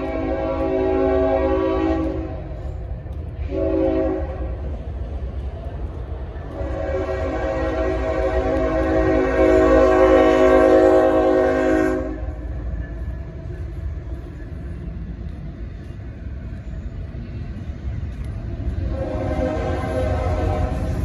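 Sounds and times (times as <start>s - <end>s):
locomotive air horn: 0.0s - 2.4s, 3.4s - 4.6s, 6.6s - 12.4s, 18.8s - 21.0s
low train rumble: 0.0s - 21.0s.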